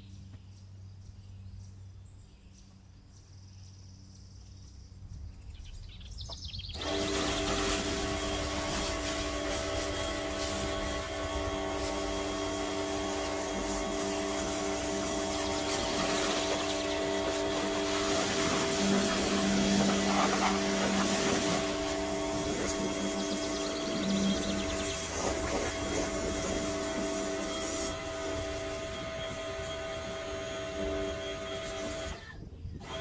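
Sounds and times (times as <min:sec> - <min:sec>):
deeper hum: 0:04.8 - 0:33.0
pressure washer motor humming: 0:06.7 - 0:33.0
water jet spraying: 0:06.8 - 0:29.0.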